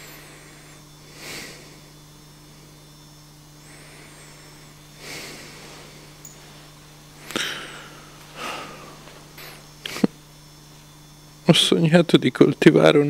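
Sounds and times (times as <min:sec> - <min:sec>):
man breathing softly: 0:00.0 - 0:02.0, 0:03.6 - 0:09.6
low electrical hum: 0:00.0 - 0:13.0.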